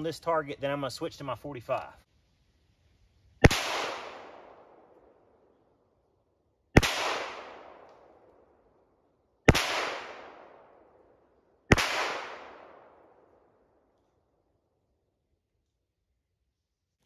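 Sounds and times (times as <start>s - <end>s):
pistol shots with echo: 3.4s - 5.2s, 6.8s - 8.3s, 9.5s - 11.1s, 11.7s - 13.5s.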